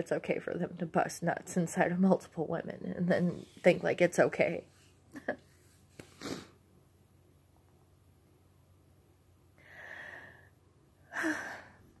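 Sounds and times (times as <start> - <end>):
woman breathing out: 9.6 - 11.9.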